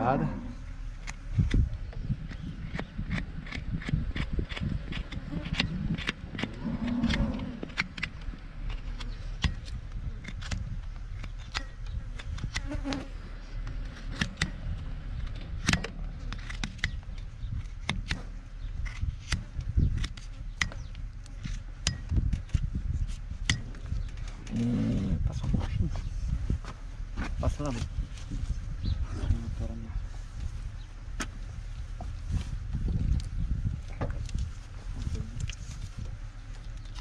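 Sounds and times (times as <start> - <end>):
hoof knife scraping hoof: 2.2 - 25.8.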